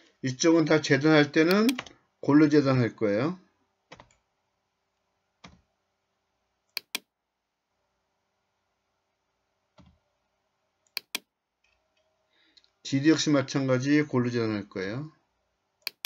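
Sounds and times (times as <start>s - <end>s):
mouse button double-clicks: 6.8s - 7.0s, 11.0s - 11.2s.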